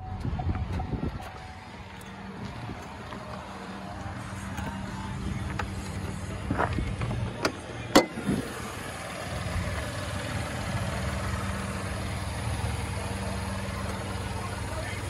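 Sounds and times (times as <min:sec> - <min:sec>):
car engine idling: 0:00.0 - 0:15.0
hood latch clicks: 0:07.4 - 0:08.2.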